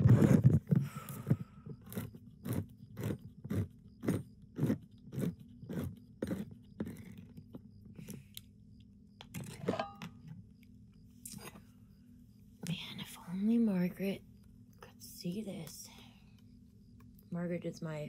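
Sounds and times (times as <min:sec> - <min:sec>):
person chewing food: 0:01.2 - 0:07.3.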